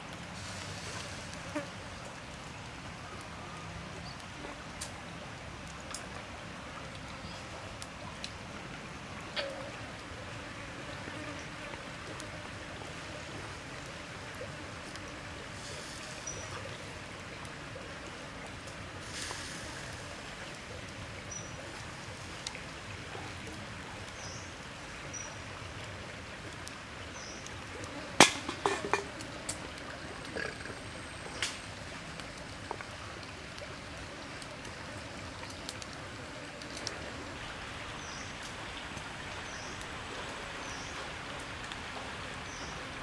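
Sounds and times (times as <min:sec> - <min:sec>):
pork sizzling over a fire: 0:00.0 - 0:08.5, 0:09.5 - 0:43.0
sharp pops: 0:28.2 - 0:29.6.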